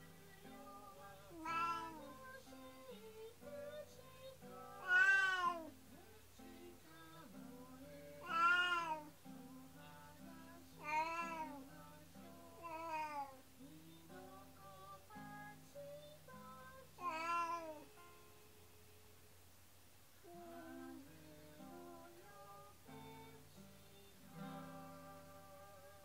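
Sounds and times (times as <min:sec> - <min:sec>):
cat meowing mournfully: 0:04.7 - 0:05.7, 0:08.2 - 0:09.1.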